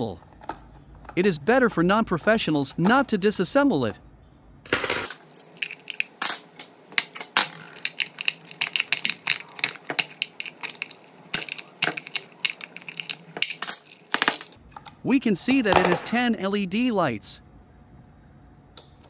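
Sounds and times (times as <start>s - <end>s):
plastic housing clicking and crackling: 5.0s - 15.0s.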